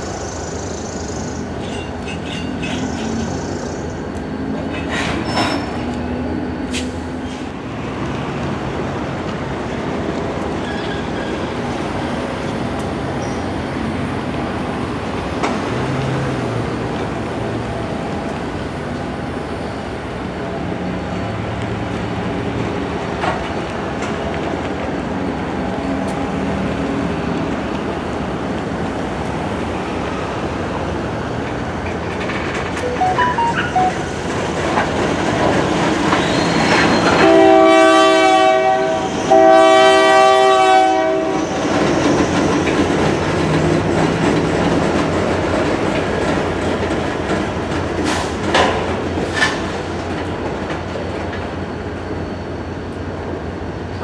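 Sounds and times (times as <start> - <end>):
freight train rumbling and rattling: 0.0 - 54.0
train cars clanking: 1.6 - 3.3, 4.5 - 7.6, 31.3 - 52.1.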